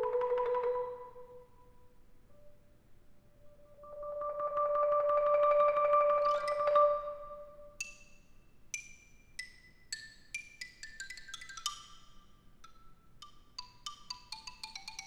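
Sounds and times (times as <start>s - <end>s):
marimba roll: 3.8s - 7.6s.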